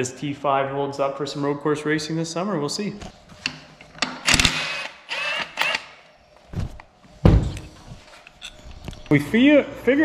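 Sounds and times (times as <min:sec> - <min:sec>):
cordless drill whirring: 0:04.3 - 0:05.9.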